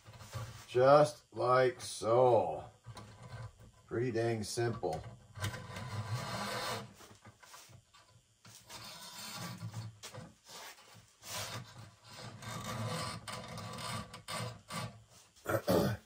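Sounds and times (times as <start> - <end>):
wire cable scraping on wooden pole: 0.0 - 0.6, 2.8 - 3.8, 4.7 - 15.2.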